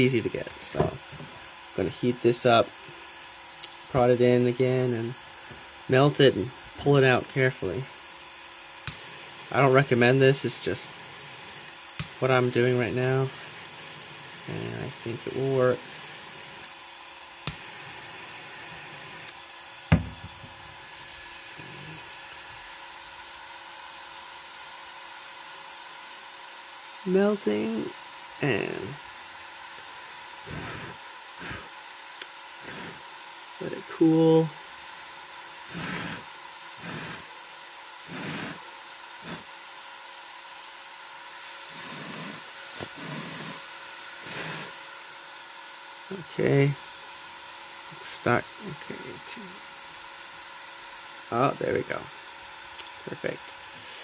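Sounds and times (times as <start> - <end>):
printer fans whirring: 0.0 - 23.4, 27.1 - 31.9, 32.5 - 37.3, 38.0 - 39.5, 41.1 - 45.2.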